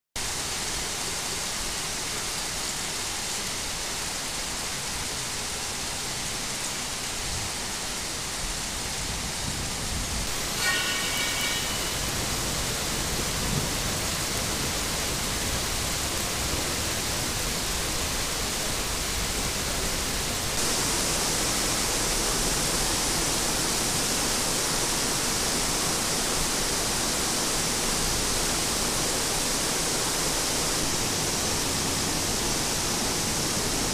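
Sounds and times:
heavy rain pouring: 0:00.2 - 0:33.9
high-pitched tone: 0:10.3 - 0:12.9.

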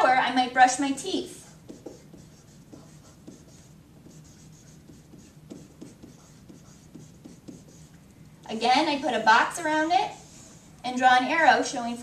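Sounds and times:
marker pen scratching on paper: 0:01.4 - 0:08.0, 0:10.0 - 0:10.8.

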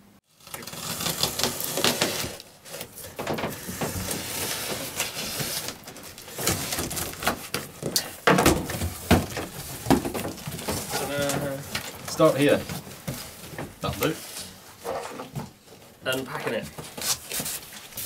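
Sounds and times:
packing tape ripping off cardboard: 0:00.3 - 0:14.4, 0:16.8 - 0:18.0
cardboard flaps rustling: 0:00.5 - 0:18.0
cardboard knocks: 0:08.3 - 0:11.0.

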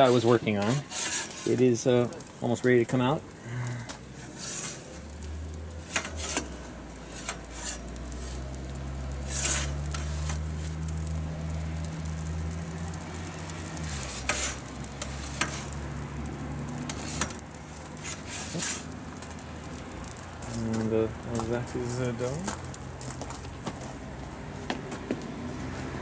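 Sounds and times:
scrapes in oven: 0:00.0 - 0:01.8, 0:03.4 - 0:10.8, 0:13.8 - 0:15.8, 0:16.9 - 0:19.2
wood fire crackling: 0:00.0 - 0:26.0.

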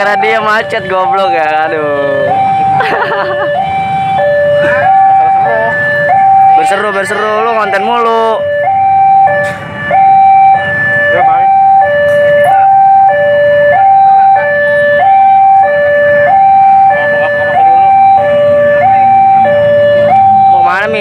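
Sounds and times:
two-tone crossing alarm: 0:00.0 - 0:21.0.

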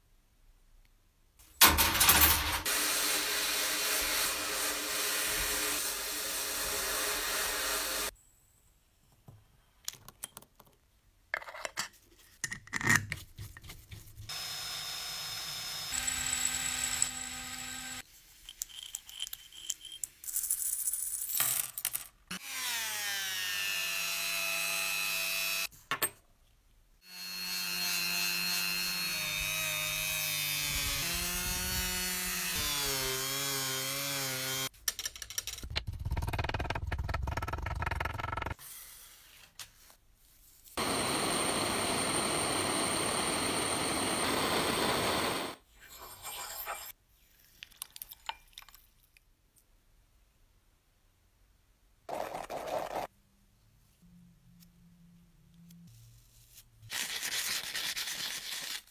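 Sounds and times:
rotary tool high whine: 0:14.3 - 0:18.0, 0:40.8 - 0:45.6
screws dropping into glass jar: 0:18.5 - 0:22.1.

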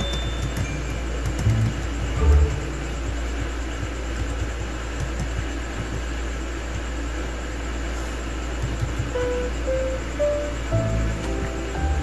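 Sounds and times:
keyboard typing clicks: 0:00.0 - 0:03.2, 0:03.8 - 0:06.1, 0:08.6 - 0:09.3
steady low hum: 0:00.0 - 0:12.0.

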